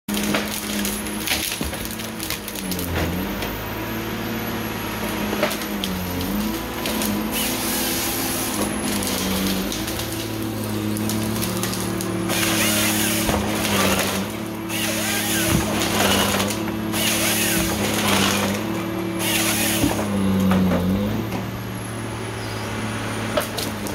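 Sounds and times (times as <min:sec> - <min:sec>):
wood cracking and knocking: 0:00.1 - 0:03.2, 0:08.6 - 0:20.8
harvester engine droning: 0:00.1 - 0:23.9.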